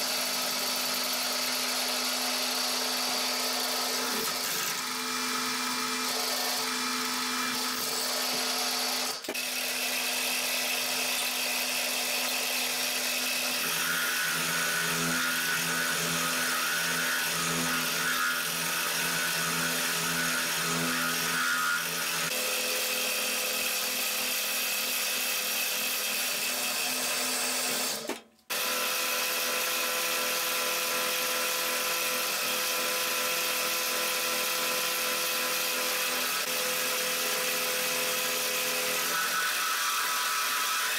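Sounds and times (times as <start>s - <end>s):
end mill cutting metal: 0.1s - 40.9s
milling machine hum: 13.0s - 22.3s.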